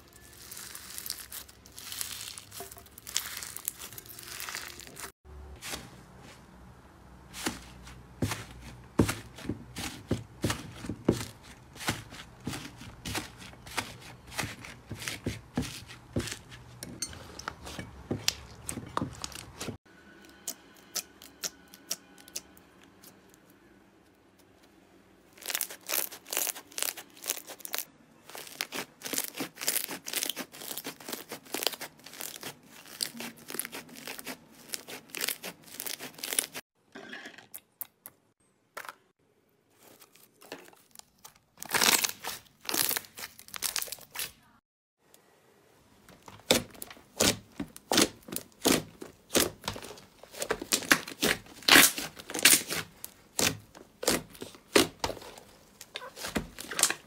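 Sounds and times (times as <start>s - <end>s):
slime crackling and popping: 0.2s - 5.1s, 25.3s - 36.6s, 46.4s - 57.0s.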